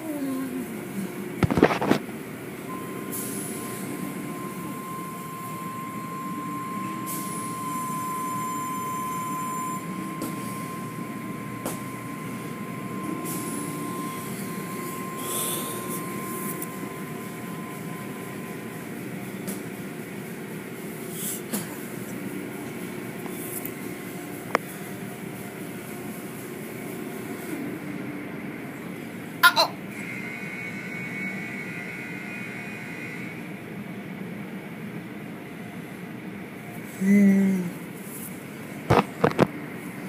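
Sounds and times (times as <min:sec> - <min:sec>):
machinery noise: 0:00.0 - 0:33.6
high-pitched whine: 0:02.6 - 0:29.1.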